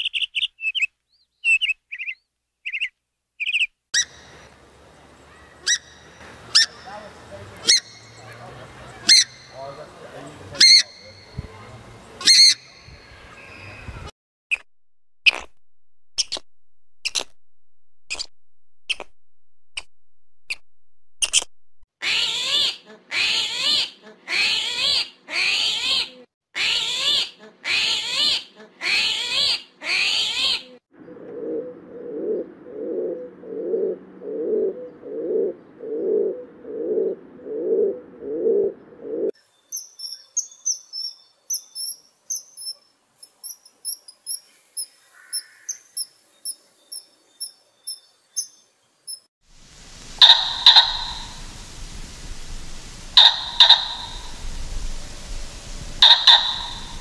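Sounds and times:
loud animal calls: 5.3 - 9.8, 50.2 - 51.5, 53.2 - 54.4, 56.0 - 57.0
lower animal call: 31.0 - 39.3, 50.2 - 51.6, 53.1 - 54.6, 55.9 - 57.0
high chirping: 39.6 - 49.3, 50.2 - 51.5, 53.2 - 54.7, 56.0 - 57.0.

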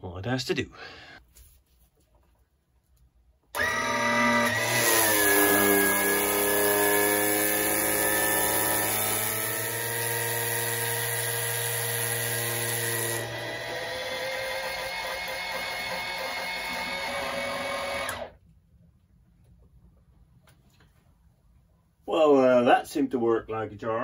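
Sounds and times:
electric pump running: 3.6 - 18.4.

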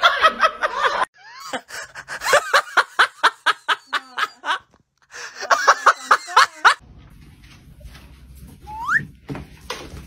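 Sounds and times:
person laughing in rhythmic bursts: 0.0 - 6.8.

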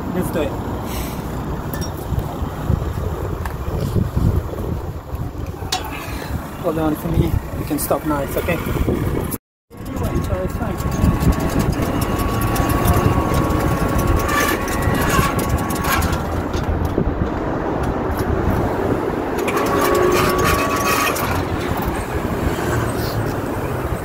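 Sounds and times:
roller grille rolling up: 9.7 - 17.2, 19.0 - 23.3.

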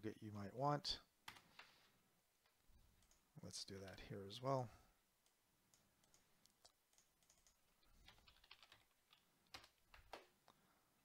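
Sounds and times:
typing on computer keyboard: 3.0 - 3.2, 5.2 - 10.3.

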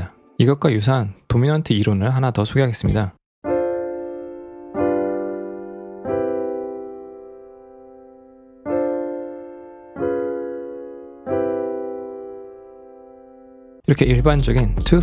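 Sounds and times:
sustained keyboard chords: 3.4 - 15.0.

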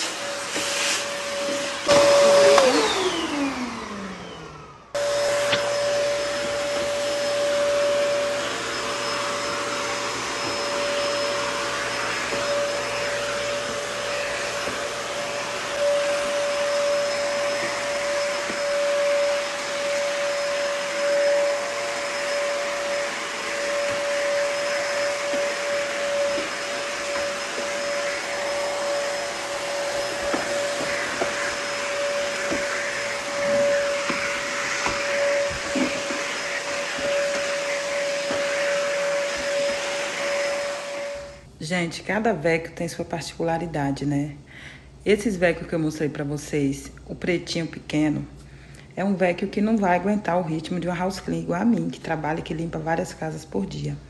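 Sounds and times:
vacuum cleaner motor winding down: 0.0 - 41.5
vacuum cleaner running on wooden floor: 0.0 - 41.5.

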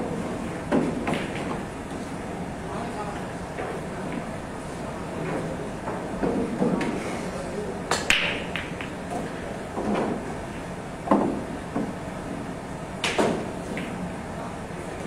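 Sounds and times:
cue striking ball sharp crack: 0.4 - 2.0, 7.9 - 10.3, 11.0 - 12.0, 13.0 - 14.3
pool balls clattering: 0.4 - 2.1, 8.0 - 10.3
pool ball knocks: 8.0 - 10.2, 11.0 - 12.0.

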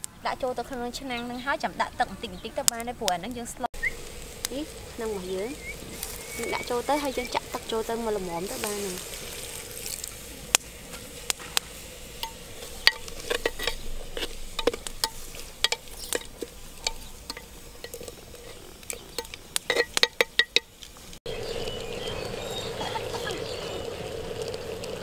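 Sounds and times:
faint sizzle: 0.0 - 25.0
metal spoon stirring in pot: 10.9 - 20.9
spoon clinking and scraping pot: 12.2 - 20.8.

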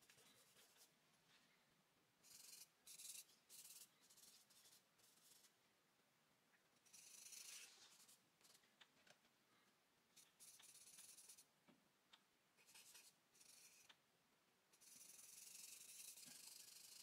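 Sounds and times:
charcoal scratching on paper: 2.2 - 5.5, 6.9 - 8.2, 10.2 - 11.5, 12.6 - 13.9, 14.8 - 17.0.

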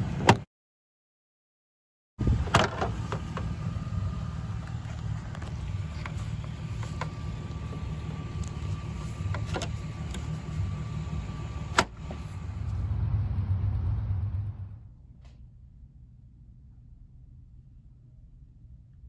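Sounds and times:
car engine idling: 2.2 - 14.9.

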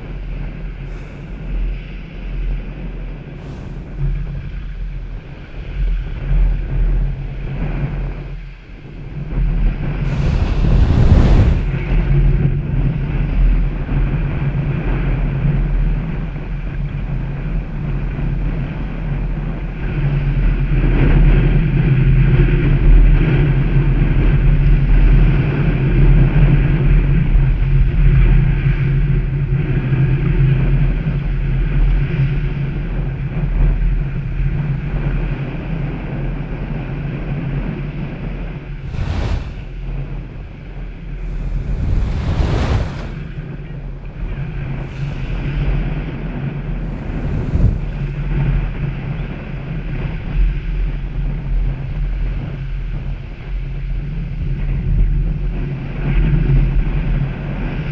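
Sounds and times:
wind buffeting microphone: 0.0 - 14.6, 38.6 - 50.3
low drone: 9.0 - 12.3, 38.7 - 44.0
small waves breaking on sand: 10.0 - 11.8, 38.8 - 39.9, 41.2 - 43.4.

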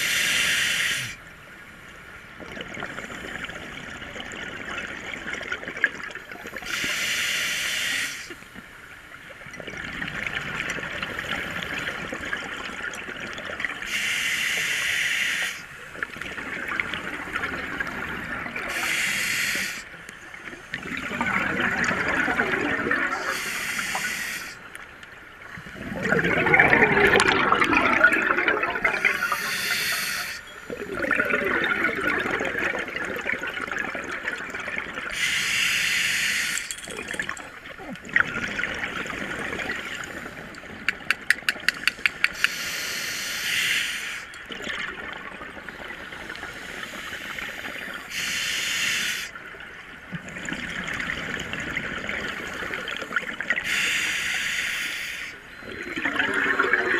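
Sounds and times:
exhaled bubbles underwater: 2.4 - 6.8, 9.4 - 13.9, 15.9 - 24.2, 25.3 - 35.2, 36.9 - 42.6, 44.3 - 48.1, 49.4 - 53.9, 55.5 - 56.9
inhale through regulator: 18.7 - 19.9, 23.2 - 24.6, 28.8 - 30.5, 35.1 - 36.8, 42.3 - 44.4, 45.8 - 49.4, 53.6 - 55.4.

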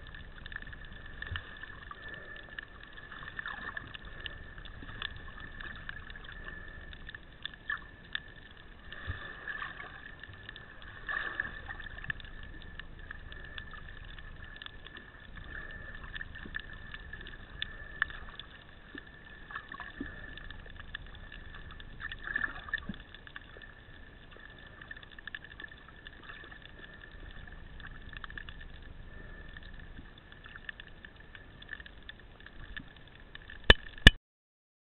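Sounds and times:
muffled underwater rush: 0.0 - 34.2
clicks and small knocks: 30.6 - 34.2.

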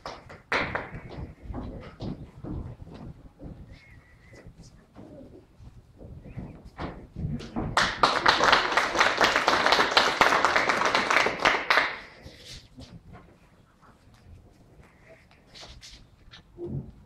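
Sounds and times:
audience applauding: 7.7 - 12.3.

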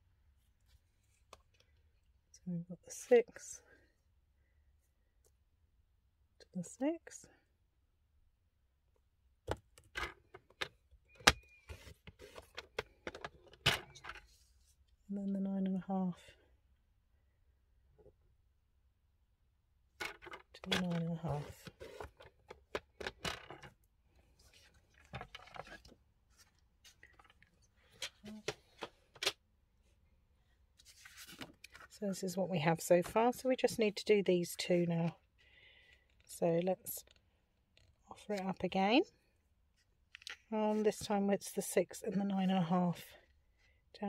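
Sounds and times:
paper rustling: 30.8 - 31.9.

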